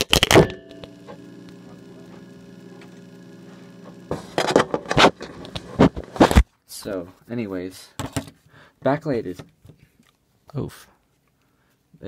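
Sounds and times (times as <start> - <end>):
steady electrical hum: 0.2 - 6.4
camera clattering down: 4.1 - 6.5.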